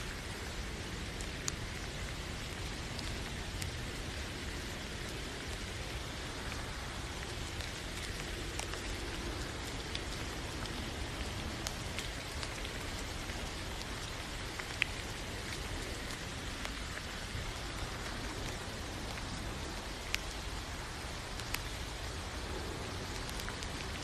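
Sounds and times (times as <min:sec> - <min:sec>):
steady rain falling: 0:00.0 - 0:24.0.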